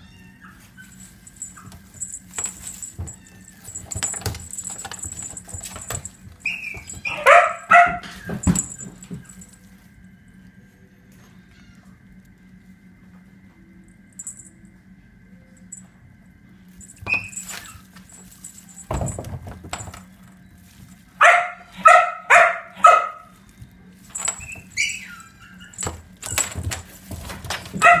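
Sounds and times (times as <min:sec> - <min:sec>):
kitten scuffing and clicking on tiles: 0:00.8 - 0:09.6, 0:16.8 - 0:21.2, 0:23.4 - 0:28.0
small dog yapping: 0:06.4 - 0:08.6, 0:21.2 - 0:23.3, 0:24.3 - 0:25.9, 0:27.8 - 0:28.0.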